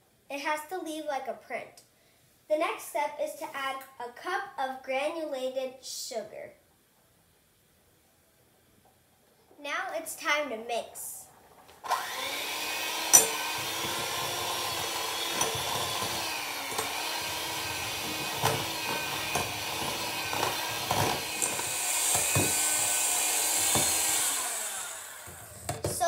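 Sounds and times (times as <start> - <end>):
electric hand mixer running: 11.8 - 25.9.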